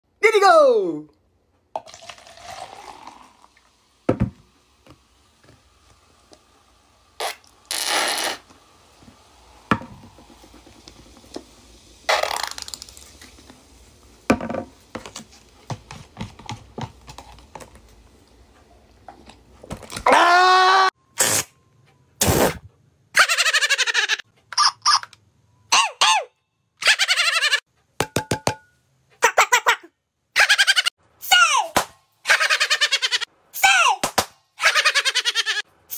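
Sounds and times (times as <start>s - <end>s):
soft drink pouring into cup: 1.8s - 3.7s
squeeze bottle sputtering: 7.2s - 8.6s, 12.1s - 13.4s
man screaming: 20.0s - 20.9s
bottles clicking and knocking: 28.0s - 28.7s.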